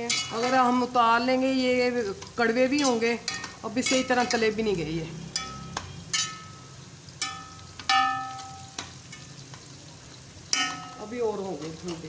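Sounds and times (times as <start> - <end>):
faint frying sizzle: 0.0 - 12.0
utensil knocking metal pot: 7.2 - 8.9, 10.5 - 11.1.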